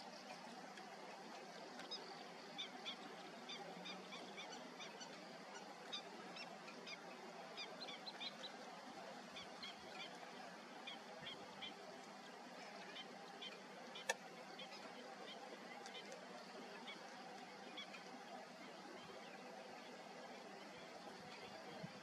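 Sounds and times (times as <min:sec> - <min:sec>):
steady outdoor hiss: 0:00.0 - 0:22.0
birds chirping: 0:00.1 - 0:22.0.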